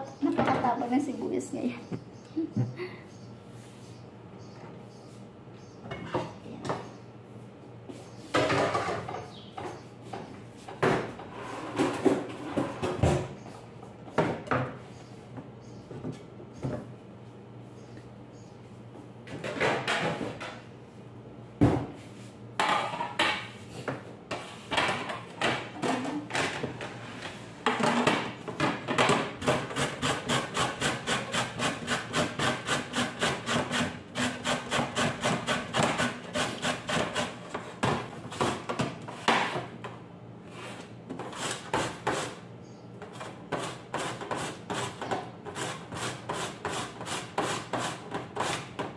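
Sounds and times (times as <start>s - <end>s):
carrot grating on metal grater: 29.4s - 37.4s, 43.6s - 48.7s.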